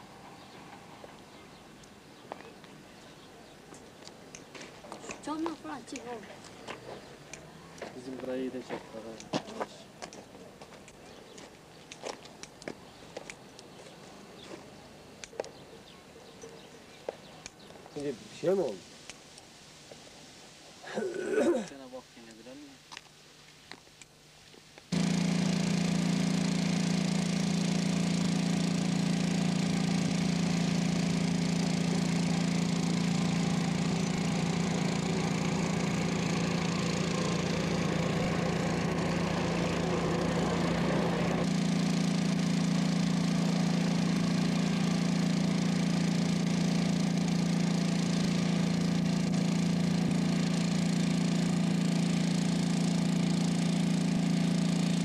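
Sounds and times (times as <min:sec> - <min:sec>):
engine droning: 0:24.9 - 0:55.0.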